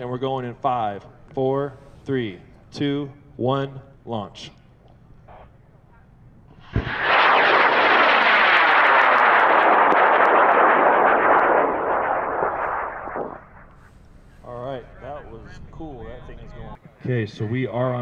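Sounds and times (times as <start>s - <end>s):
rocket motor roar: 6.7s - 13.8s.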